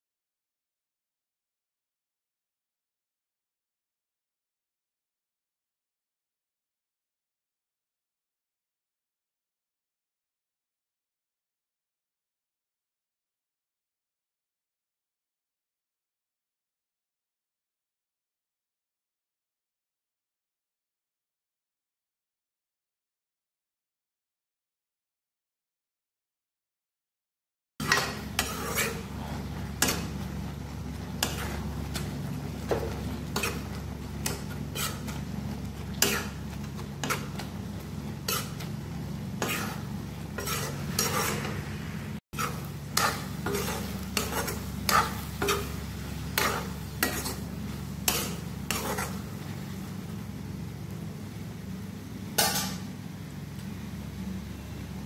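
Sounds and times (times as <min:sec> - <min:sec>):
spatula scraping a pan: 0:27.8 - 0:49.9, 0:52.4 - 0:52.8
steady low hum: 0:27.8 - 0:55.0.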